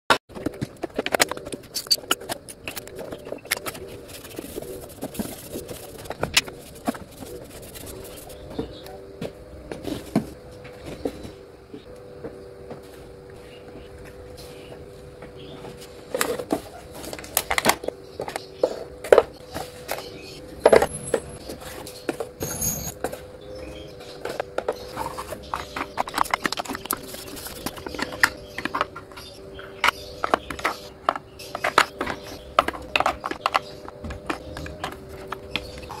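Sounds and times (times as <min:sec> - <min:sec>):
plastic bottles clicking and clacking: 0:24.4 - 0:36.0.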